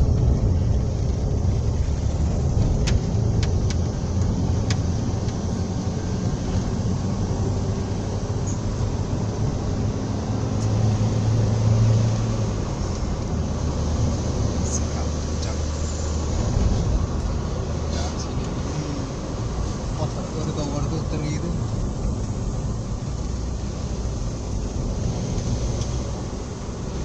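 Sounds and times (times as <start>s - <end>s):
car engine and tyres rumbling: 0.0s - 27.0s.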